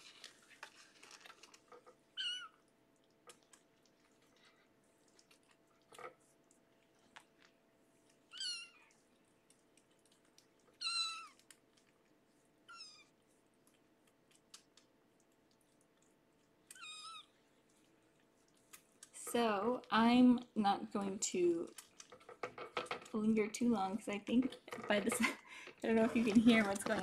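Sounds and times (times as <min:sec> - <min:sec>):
clicks and rustles of handling: 0:00.0 - 0:02.1, 0:02.9 - 0:08.3, 0:21.0 - 0:27.0
kittens meowing: 0:02.2 - 0:02.6, 0:08.3 - 0:08.9, 0:10.8 - 0:11.4, 0:16.7 - 0:17.3.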